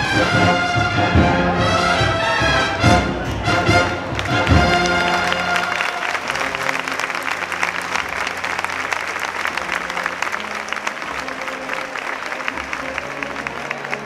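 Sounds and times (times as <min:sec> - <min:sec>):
crowd applauding: 0:03.3 - 0:14.0.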